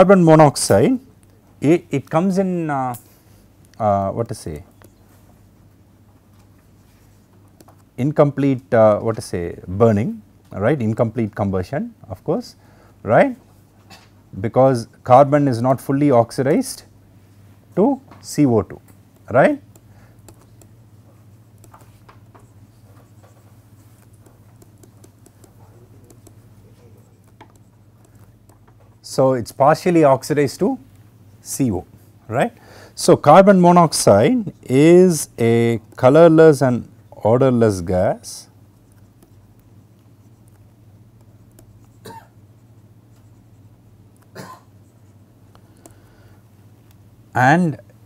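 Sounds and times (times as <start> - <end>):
steady low hum: 0.0 - 48.0
stylus scratching on tablet screen: 19.1 - 28.6, 38.7 - 46.0
stylus tapping on tablet screen: 21.4 - 26.4, 27.3 - 28.9.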